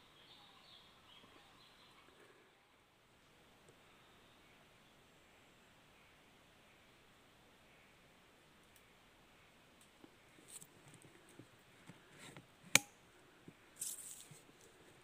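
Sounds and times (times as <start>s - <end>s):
rustling: 13.8s - 15.0s.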